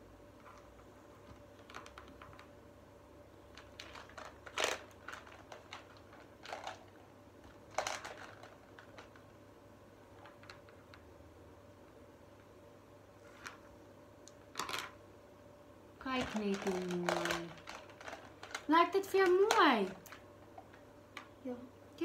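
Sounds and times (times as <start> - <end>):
plastic beads clicking: 3.5 - 6.9, 7.5 - 9.3, 16.2 - 21.3.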